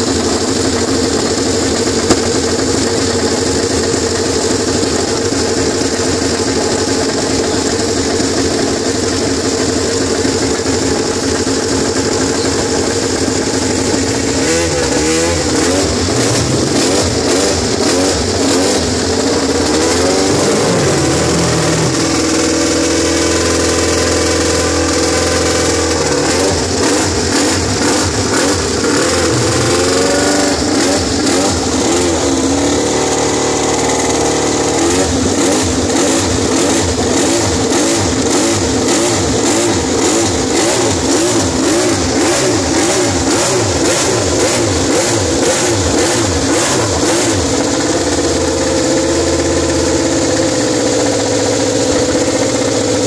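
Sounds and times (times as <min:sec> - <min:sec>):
racing engine revving: 0:13.1 - 0:48.4.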